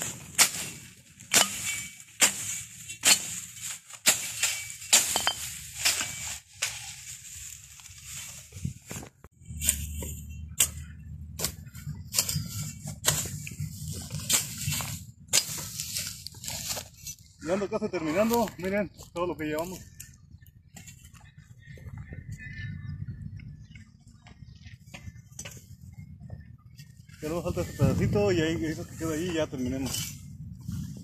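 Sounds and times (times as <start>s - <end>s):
machete swishing through dry grass: 0.0s - 10.8s, 11.4s - 17.2s.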